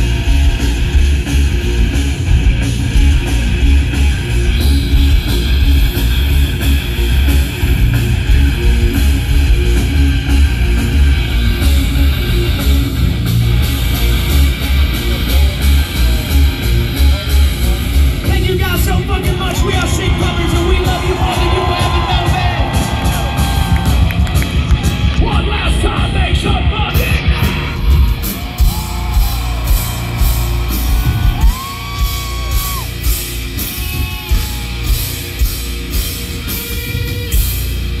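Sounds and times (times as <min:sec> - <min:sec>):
distorted guitars: 0:00.0 - 0:38.0
heavy bass: 0:00.0 - 0:38.0
pounding drums: 0:18.0 - 0:38.0
fans yelling and whooping: 0:18.3 - 0:35.6.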